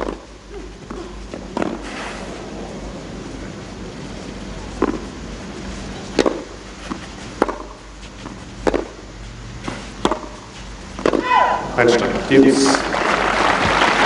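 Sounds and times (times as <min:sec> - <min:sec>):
tennis ball struck with rackets: 0:00.0 - 0:00.3, 0:04.8 - 0:05.1, 0:06.1 - 0:09.0, 0:09.6 - 0:11.6
low crowd ambience: 0:00.0 - 0:14.0.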